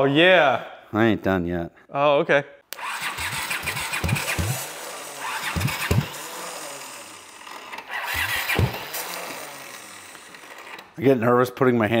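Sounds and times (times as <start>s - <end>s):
engine firing in short bursts: 2.8s - 10.8s
electric starter cranking engine: 2.8s - 11.0s.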